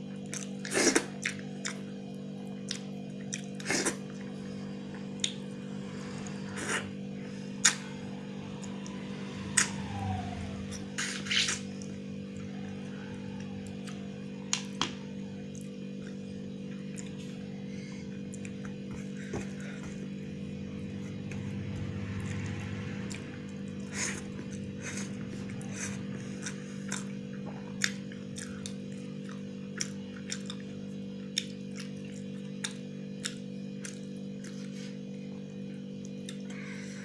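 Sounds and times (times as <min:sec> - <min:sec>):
steady low hum: 0:00.0 - 0:37.0
chewing smacks: 0:02.6 - 0:04.3, 0:26.4 - 0:34.8.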